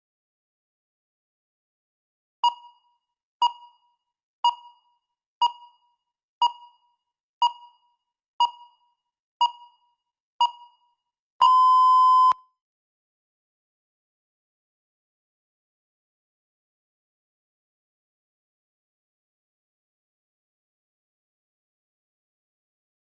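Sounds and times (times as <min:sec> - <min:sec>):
electronic timer beeps: 0:02.4 - 0:12.4.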